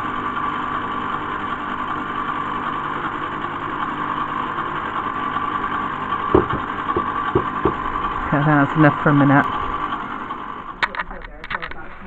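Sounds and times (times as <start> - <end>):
ice cream maker motor humming: 0.0 - 10.8
short knock: 6.4 - 7.8.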